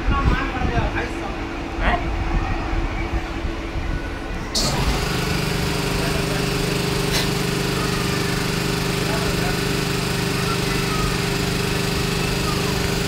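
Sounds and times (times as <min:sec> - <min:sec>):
machine hum with high hiss: 0:04.3 - 0:13.0.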